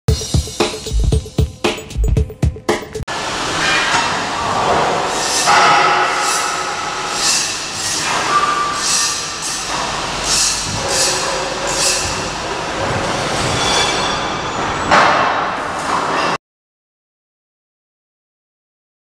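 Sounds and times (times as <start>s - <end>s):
kiddie ride mechanical squealing: 6.2s - 14.9s.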